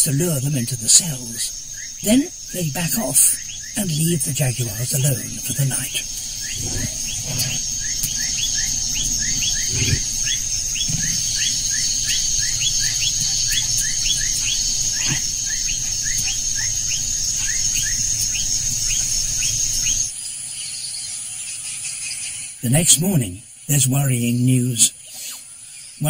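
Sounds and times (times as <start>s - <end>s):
high-pitched insect drone: 0.0s - 26.0s.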